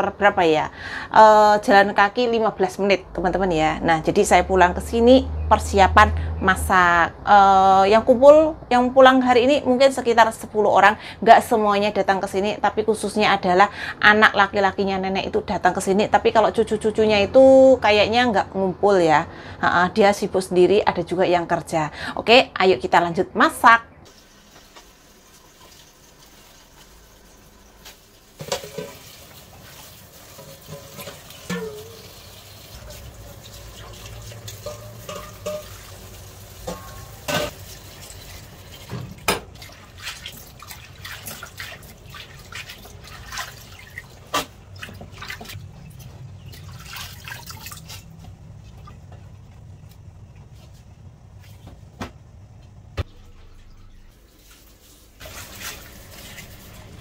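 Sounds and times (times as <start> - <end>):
tap water running into steel bowl: 24.1 - 45.6, 54.4 - 57.0.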